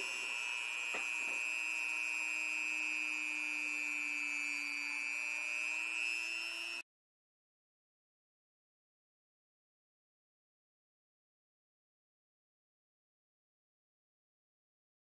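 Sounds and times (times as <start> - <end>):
electric motor whining: 0.0 - 6.8.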